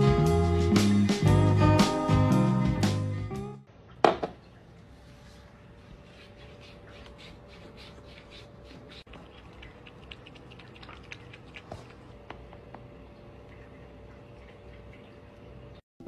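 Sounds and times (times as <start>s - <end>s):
cat lapping water: 6.0s - 15.7s.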